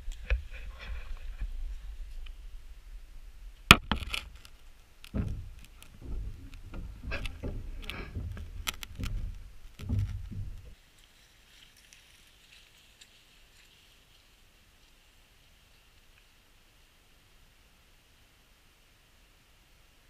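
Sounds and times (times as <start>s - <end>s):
people moving on wooden floor: 4.1s - 10.8s.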